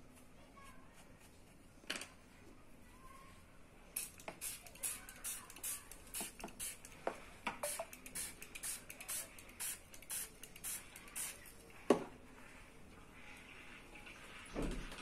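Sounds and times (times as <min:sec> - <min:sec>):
spray bottle hissing: 0:04.0 - 0:07.0, 0:07.6 - 0:11.4.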